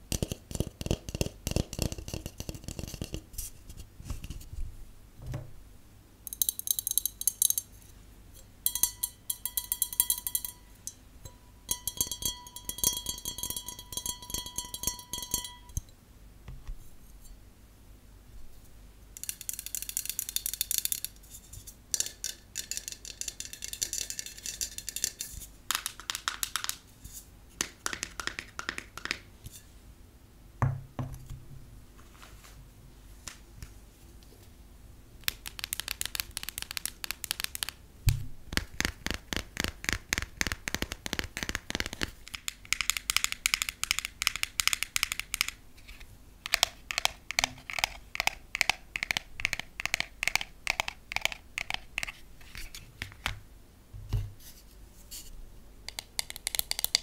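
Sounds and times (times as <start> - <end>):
fingernails tapping on cardboard tube: 0.1 - 3.3, 27.6 - 29.3, 35.3 - 45.6, 46.4 - 52.1, 55.9 - 57.0
glasses ringing: 8.7 - 15.8.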